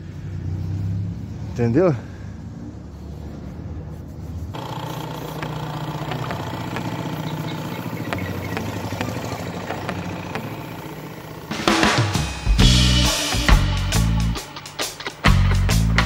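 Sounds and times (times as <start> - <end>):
air compressor motor humming: 4.6 - 16.0
light regular ticking: 4.6 - 16.0.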